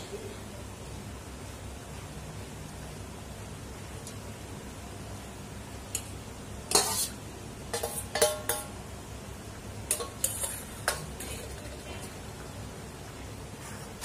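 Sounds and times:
low background hum: 0.0s - 14.0s
metal ladle clanking on pot: 6.7s - 8.8s, 9.9s - 12.0s.

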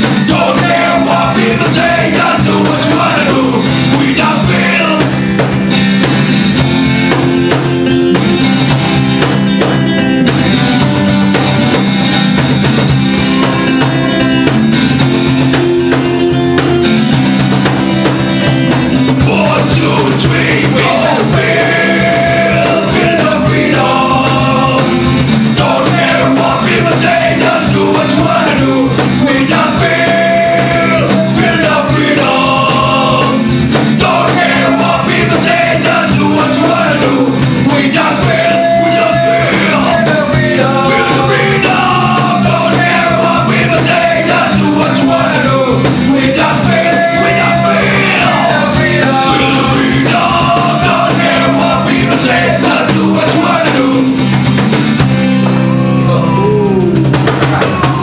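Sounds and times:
man singing lead: 0.0s - 5.3s, 19.0s - 54.3s, 55.6s - 58.0s
backing vocals: 0.0s - 5.4s, 19.0s - 54.3s, 55.5s - 58.0s
strummed acoustic guitars: 0.0s - 58.0s.

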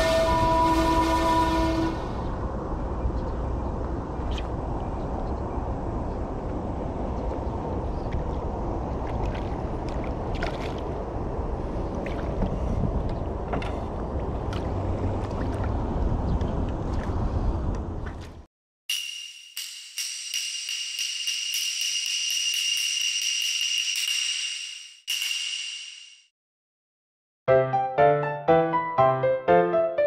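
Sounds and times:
wind on microphone: 0.0s - 18.4s
rippling water: 7.2s - 18.5s.

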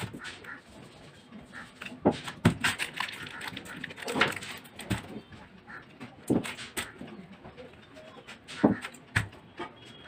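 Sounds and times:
plastic jars and spatula clatter: 1.7s - 5.4s.

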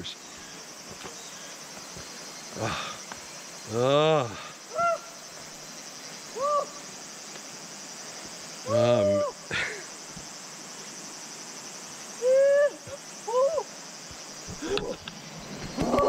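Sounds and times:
man groaning with strain: 8.7s - 9.8s.

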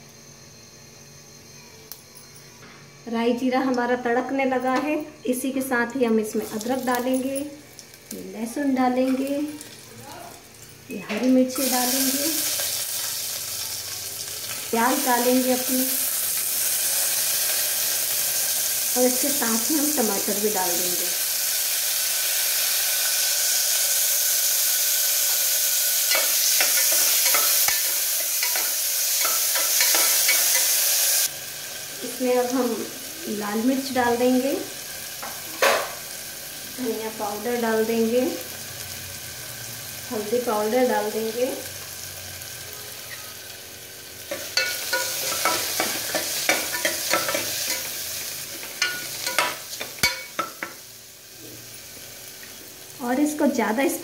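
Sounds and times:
onion and tomato sizzling in oil: 3.0s - 54.0s
spoon scraping against pot: 26.1s - 30.8s.

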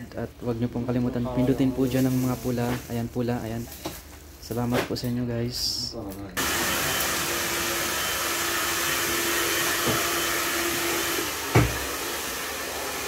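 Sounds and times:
hair dryer blowing: 6.4s - 13.0s
thump: 11.5s - 11.8s.

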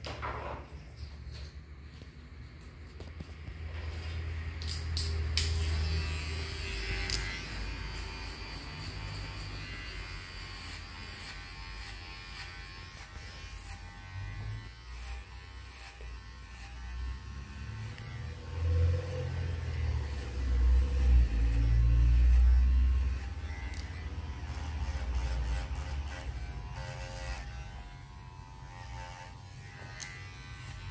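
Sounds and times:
electric hair clipper buzzing: 3.9s - 30.9s.

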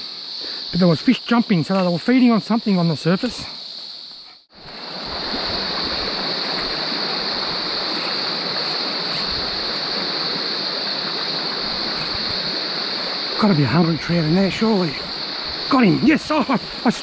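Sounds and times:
high-pitched insect drone: 0.0s - 17.0s
stream running over stones: 4.5s - 17.0s.

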